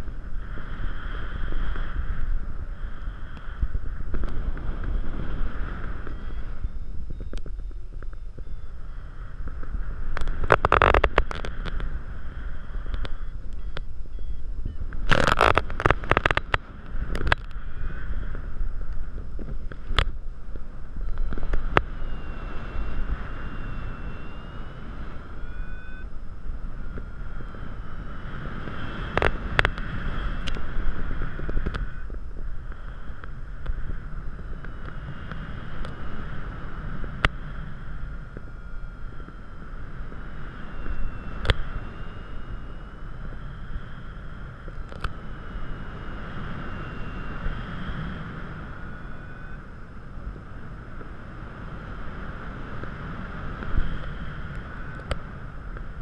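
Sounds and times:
wind buffeting camera: 0:00.0 - 0:56.0
faint high whistle: 0:05.9 - 0:09.3, 0:12.4 - 0:14.9, 0:20.9 - 0:28.2, 0:38.2 - 0:44.6, 0:45.3 - 0:50.0
sharp clicks: 0:12.8 - 0:17.6.

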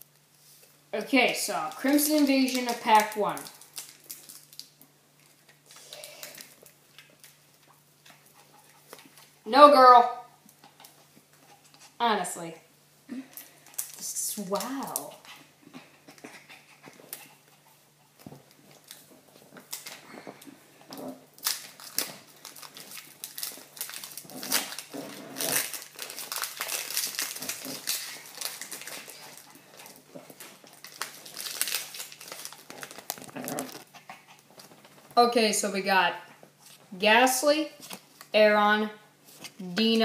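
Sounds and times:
foil wrapper crinkling: 0:01.7 - 0:09.4, 0:13.4 - 0:15.2, 0:18.4 - 0:20.2, 0:21.3 - 0:33.9.

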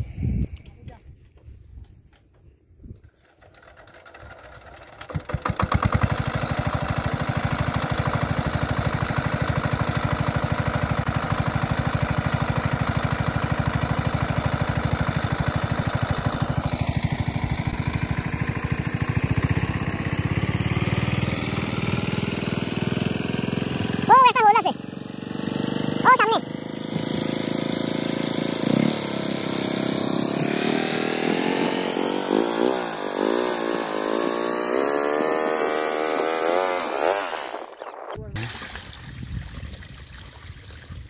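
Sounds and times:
water pump engine running: 0:03.2 - 0:32.3.

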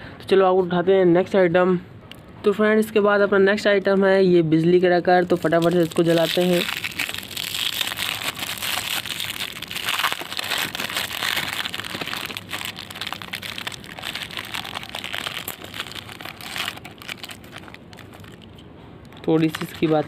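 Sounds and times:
plastic wrapper crinkling: 0:05.1 - 0:20.0.

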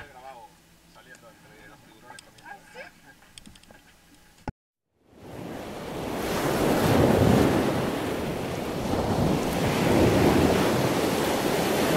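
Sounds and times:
ocean waves surging: 0:05.1 - 0:11.9.

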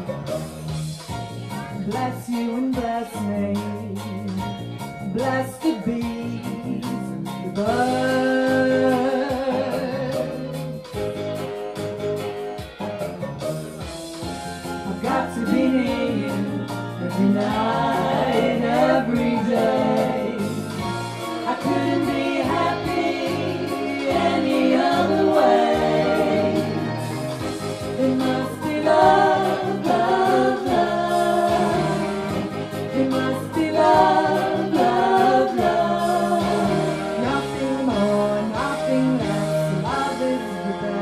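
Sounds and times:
women singing in harmony: 0:05.1 - 0:10.4, 0:14.8 - 0:41.0.

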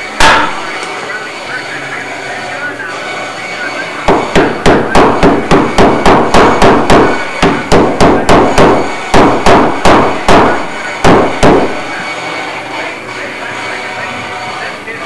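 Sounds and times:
ringing hammer blows: 0:00.0 - 0:01.2, 0:03.0 - 0:14.8.

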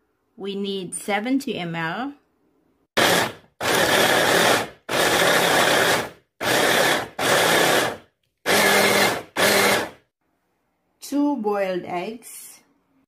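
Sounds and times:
electric food chopper pulsing: 0:03.0 - 0:10.0.

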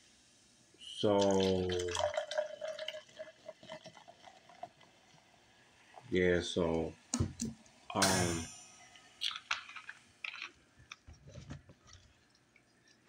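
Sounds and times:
faint clicks and taps: 0:09.2 - 0:13.0.

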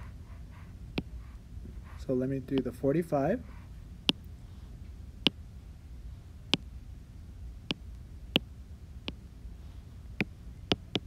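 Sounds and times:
taps on a touchscreen: 0:10.2 - 0:11.0.

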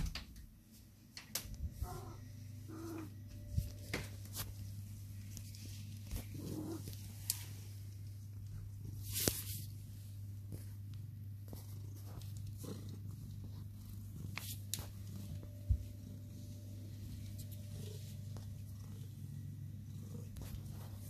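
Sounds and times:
cat purring: 0:04.8 - 0:21.0.

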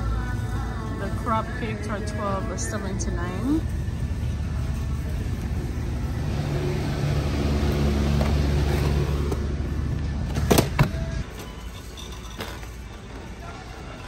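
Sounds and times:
shopping cart rolling: 0:11.2 - 0:14.0.

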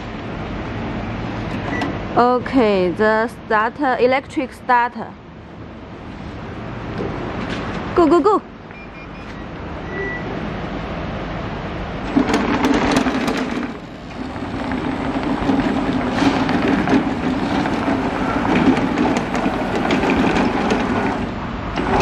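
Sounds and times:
lawn mower engine running: 0:12.0 - 0:22.0.

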